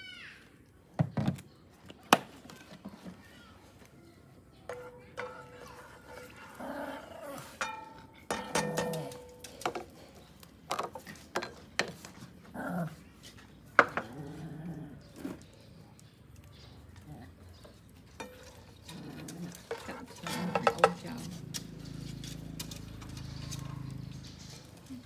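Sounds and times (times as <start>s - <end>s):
small dog growling and barking: 6.2s - 7.6s, 12.5s - 13.1s, 14.0s - 15.3s.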